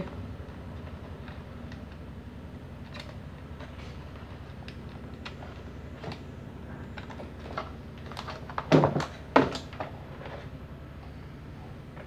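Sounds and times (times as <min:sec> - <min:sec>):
steady low hum: 0:00.0 - 0:12.0
plastic fan parts clicking: 0:02.8 - 0:05.4
loud plastic knocks: 0:08.6 - 0:09.7.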